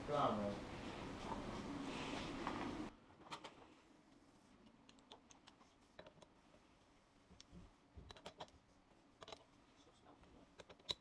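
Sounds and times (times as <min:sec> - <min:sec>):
small tools clicking and tapping: 0:04.8 - 0:06.4, 0:07.4 - 0:08.6, 0:09.2 - 0:09.5, 0:10.2 - 0:11.0.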